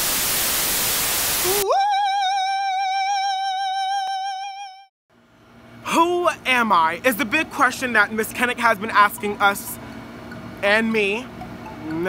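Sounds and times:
television static hiss: 0.0 - 1.6.

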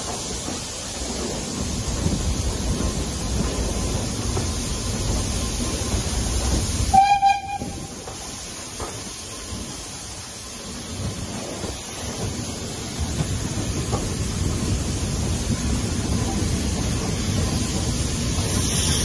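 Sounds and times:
train running noise: 0.0 - 19.0
steam locomotive whistle blast: 6.9 - 7.9.

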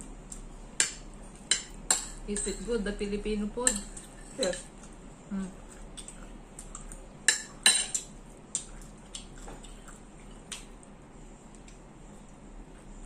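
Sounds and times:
cutlery clinking on plates: 7.3 - 8.1.

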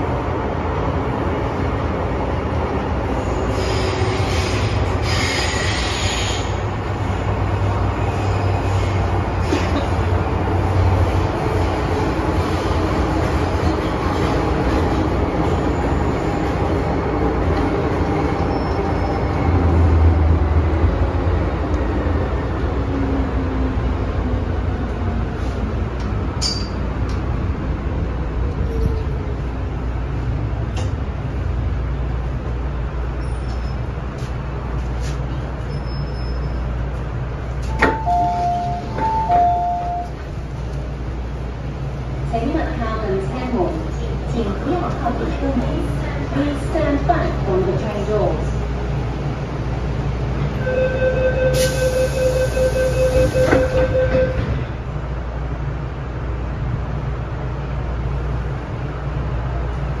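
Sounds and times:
train running with low rumble: 0.0 - 60.0
train doors sliding shut: 33.1 - 40.9, 51.2 - 54.9
high warning tone: 37.7 - 40.2
two-note train door chime: 37.7 - 40.2.

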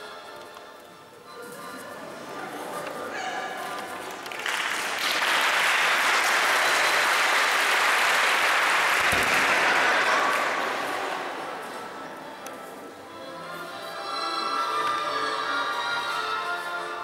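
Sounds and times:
audience applauding: 4.1 - 11.7.

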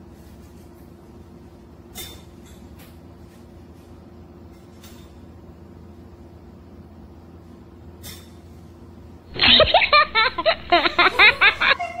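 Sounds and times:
loud laughing sound effect: 9.3 - 12.0.

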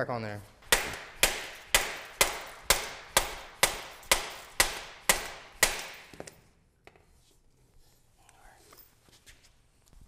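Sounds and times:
mallet striking metal: 0.6 - 6.3.

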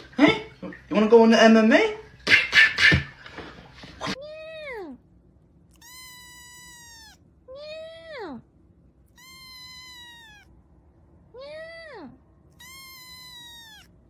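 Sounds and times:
cat meowing: 5.7 - 8.4, 9.1 - 10.6, 11.3 - 14.0.

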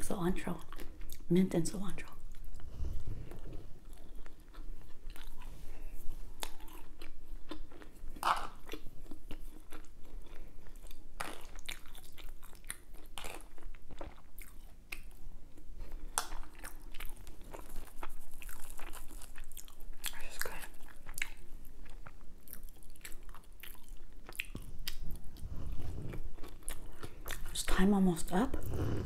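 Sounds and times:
person chewing crunchy food: 0.6 - 1.3, 2.2 - 27.6.

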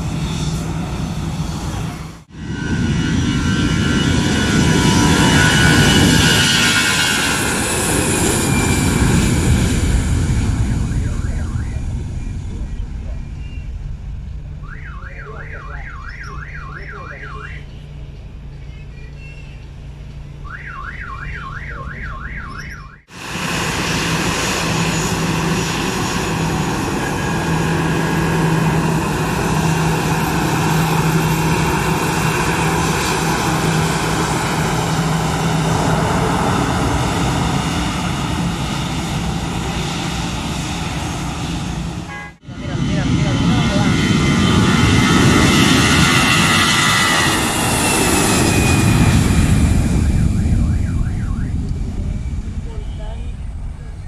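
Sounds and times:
jet engines running with low hum: 0.0 - 20.5, 22.5 - 54.0
jet engines: 0.0 - 54.0
warbling electronic alarm: 9.6 - 12.5, 14.6 - 17.7, 20.4 - 23.1, 48.2 - 51.9.

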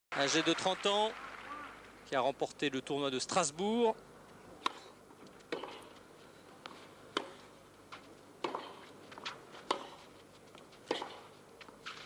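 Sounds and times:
tennis racket strikes and bounces: 4.6 - 6.0, 7.1 - 12.0.

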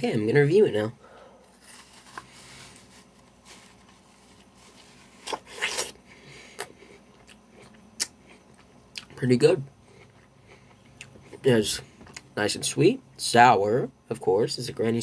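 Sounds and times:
apple crunching bite: 4.3 - 6.0.

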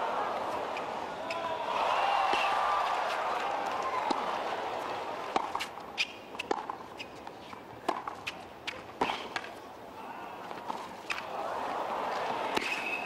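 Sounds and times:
tennis ball bouncing: 4.0 - 4.4, 5.2 - 9.6
racket striking tennis ball: 5.3 - 9.6, 12.4 - 13.0
hushed crowd: 9.8 - 13.0.

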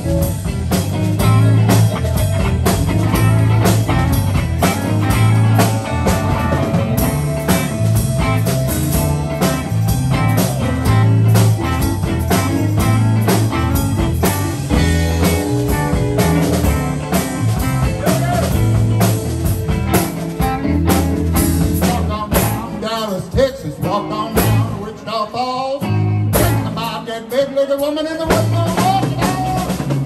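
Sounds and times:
electric blues band playing: 0.0 - 30.0.

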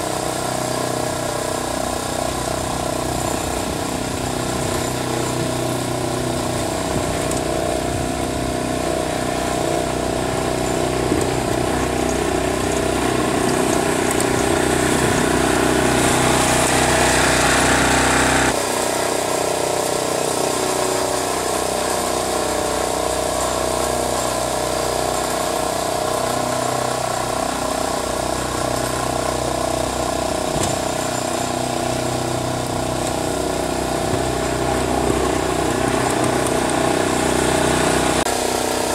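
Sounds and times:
garden tractor engine running: 0.0 - 38.9
blade scraping snow: 26.1 - 38.9.

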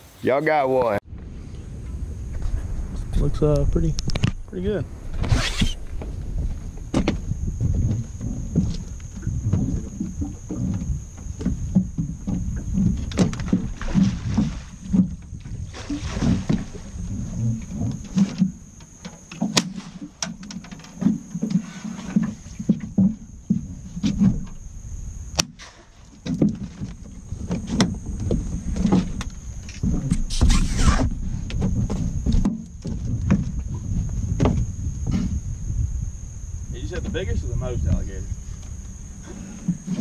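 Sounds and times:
water slapping boat hull: 5.9 - 24.6.

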